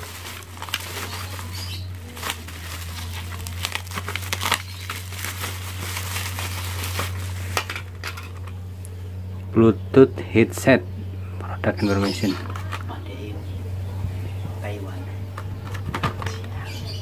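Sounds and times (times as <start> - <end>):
bubble wrap crinkling: 0.0 - 8.5
steady low hum: 0.0 - 17.0.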